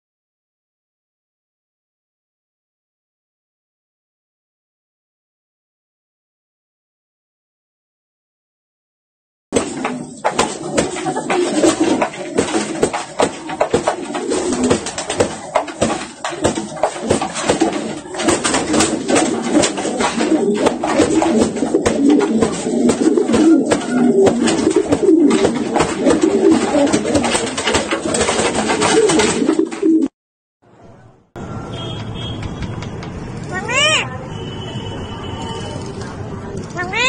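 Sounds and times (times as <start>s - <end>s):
pigeon wings flapping: 9.6s - 30.1s
pigeons cooing: 9.6s - 30.1s.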